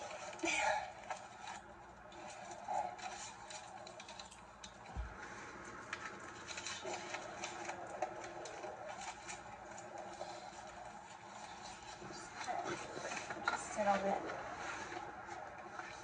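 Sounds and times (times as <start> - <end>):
light clicks and rustles: 0.0 - 16.0.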